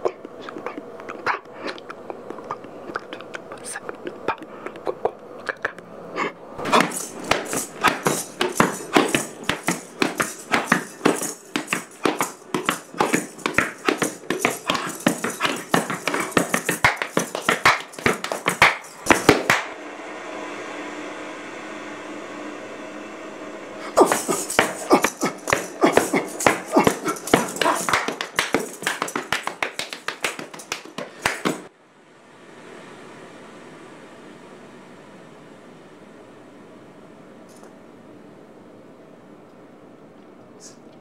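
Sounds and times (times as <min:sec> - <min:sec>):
steady hum: 0:00.0 - 0:41.0
feet stamping: 0:06.6 - 0:19.7, 0:23.9 - 0:31.7
hands slapping rubber boots: 0:06.6 - 0:19.7, 0:24.0 - 0:31.7.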